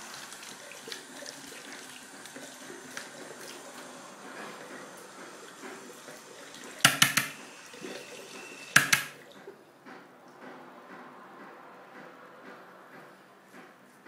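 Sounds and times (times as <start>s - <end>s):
water running: 0.0s - 9.6s
sharp clattering knocks: 6.8s - 7.4s, 8.8s - 9.2s.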